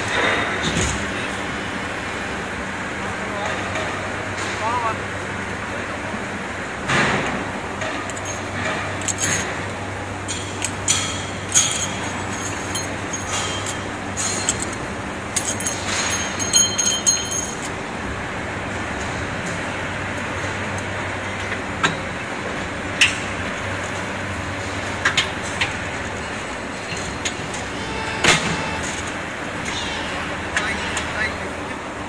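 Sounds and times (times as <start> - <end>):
machine low hum: 0.0 - 32.0
light clinks and knocks on metal: 10.2 - 17.8.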